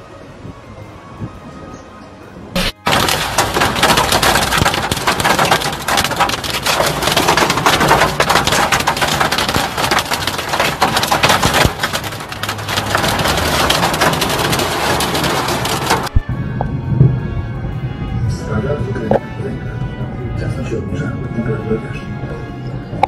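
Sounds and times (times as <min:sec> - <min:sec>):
hail and rain on car: 0:02.6 - 0:16.2.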